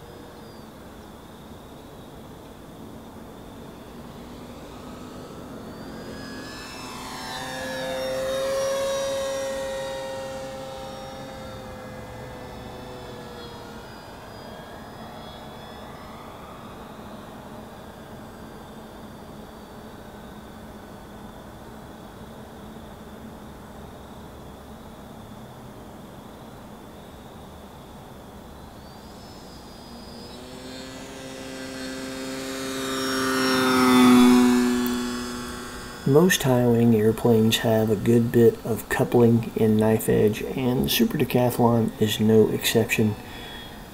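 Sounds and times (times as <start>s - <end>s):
model plane motor whine: 0.0s - 43.9s.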